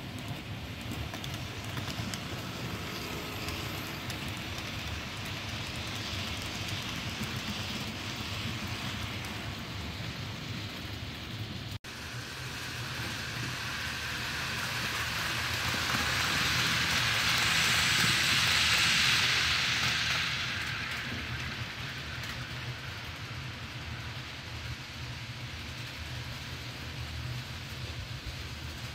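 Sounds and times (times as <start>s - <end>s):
model train wheels clattering on rails: 0.0s - 28.9s.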